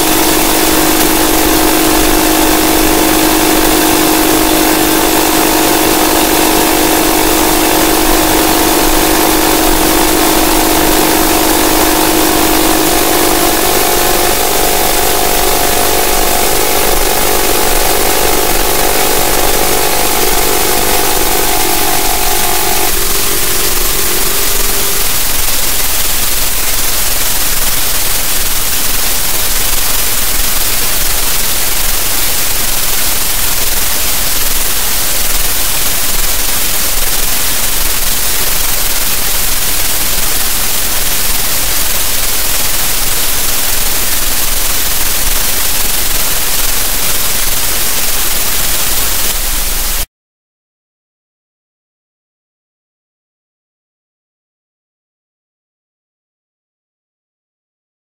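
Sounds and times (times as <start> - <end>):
low hum: 0.0 - 26.7
bright static hiss: 0.0 - 50.1.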